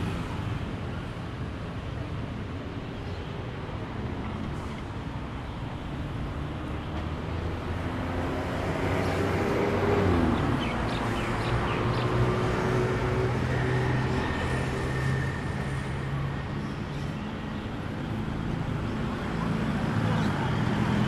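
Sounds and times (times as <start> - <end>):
vehicle passing by: 6.4 - 16.4.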